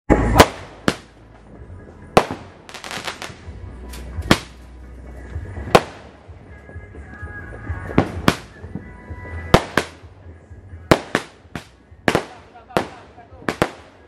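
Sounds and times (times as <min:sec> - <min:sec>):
roman candle shots: 0:00.1 - 0:06.6, 0:07.8 - 0:14.0
small firework pops: 0:02.2 - 0:04.6.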